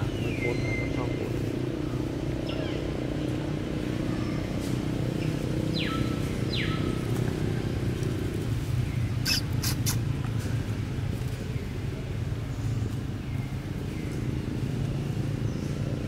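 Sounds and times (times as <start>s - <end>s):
high animal squeaks: 9.2s - 10.1s.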